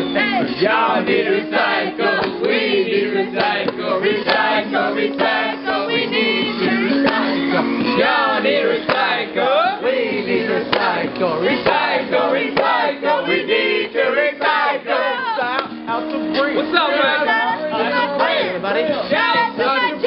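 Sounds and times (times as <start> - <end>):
group of people singing: 0.0 - 20.0.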